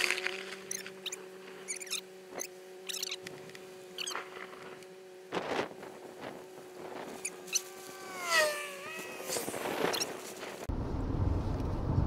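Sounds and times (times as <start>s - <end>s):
drawn-out squeal: 0.0s - 3.3s, 3.9s - 4.6s, 7.2s - 10.3s
gusty wind noise: 9.0s - 12.0s.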